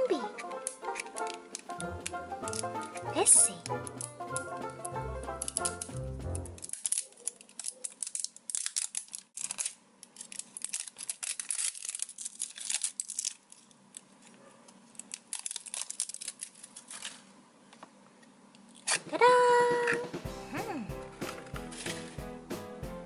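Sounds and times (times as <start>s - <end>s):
rustling: 5.4s - 17.4s.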